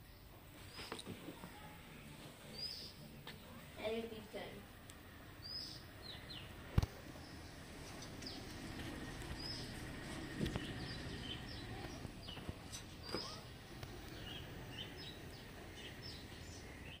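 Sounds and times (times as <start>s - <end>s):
high bird chirps: 10.5s - 13.5s.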